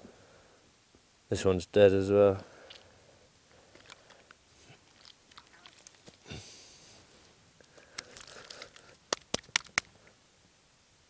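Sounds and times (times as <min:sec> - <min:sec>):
rustling and crunching on grass: 0:03.7 - 0:10.0
short hiss: 0:06.2 - 0:09.0.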